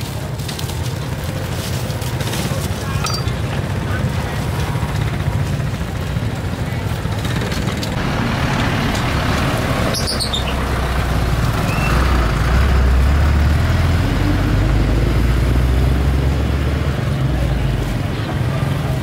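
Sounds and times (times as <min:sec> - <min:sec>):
traffic engines rumbling: 0:00.0 - 0:19.0
high falling chirp: 0:09.6 - 0:10.9.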